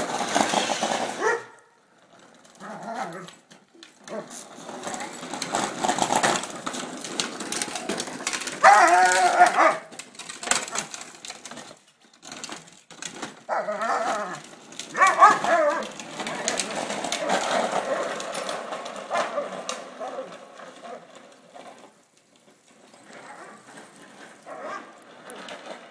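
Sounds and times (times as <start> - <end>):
plastic wheels rattling on asphalt: 0.0 - 25.9
dog barking and growling: 1.1 - 1.7, 8.6 - 9.9, 13.5 - 16.5, 24.5 - 24.9.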